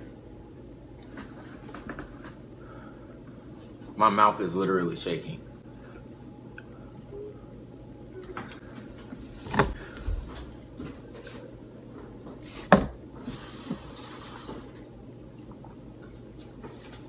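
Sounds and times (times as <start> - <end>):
hiss: 13.2 - 14.7.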